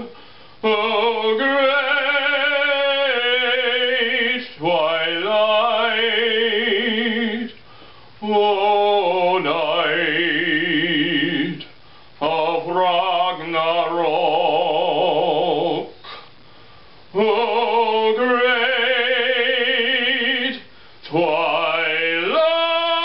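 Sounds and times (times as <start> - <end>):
man singing operatically: 0.0 - 7.6, 8.2 - 16.0, 17.1 - 23.0
singer breaths: 0.1 - 0.6, 7.6 - 8.2, 11.8 - 12.2, 16.0 - 17.1, 20.7 - 21.1.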